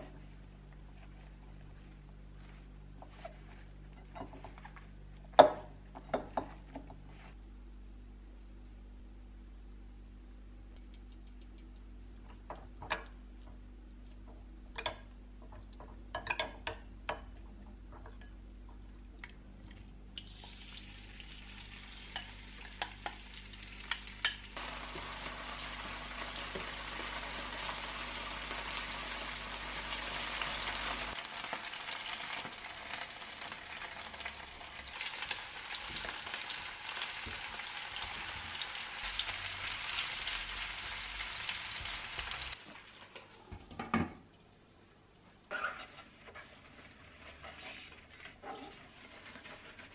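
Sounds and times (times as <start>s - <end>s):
metal spoon clicking on glass bowl: 10.8s - 11.9s
chicken sizzling in frying pan: 20.3s - 43.2s.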